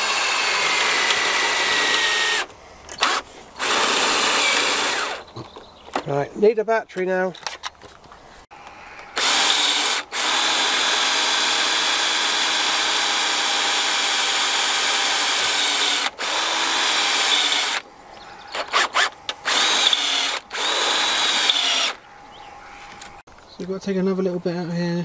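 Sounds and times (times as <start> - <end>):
cordless drill running: 0.0 - 5.2, 9.2 - 17.8, 18.5 - 22.0.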